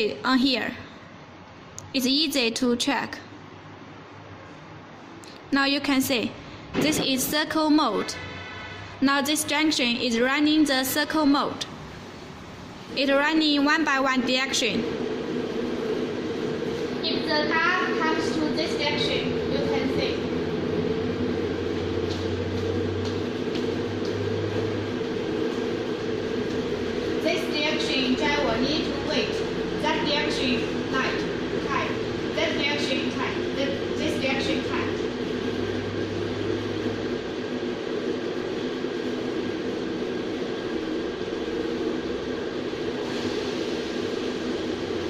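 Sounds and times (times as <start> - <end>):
steady mechanical hum: 0.0 - 45.0.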